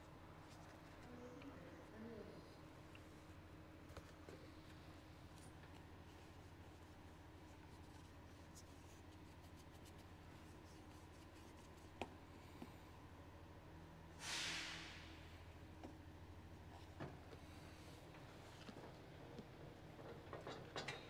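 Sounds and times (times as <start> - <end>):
low steady hum: 0.0 - 14.2
faint scraping and handling: 0.4 - 2.0, 2.9 - 13.0
short hiss: 14.2 - 15.3.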